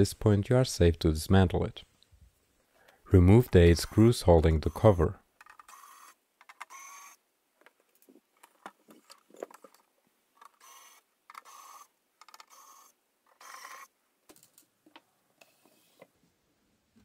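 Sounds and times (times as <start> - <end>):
electric screwdriver whirring: 5.4 - 7.2, 10.5 - 13.9.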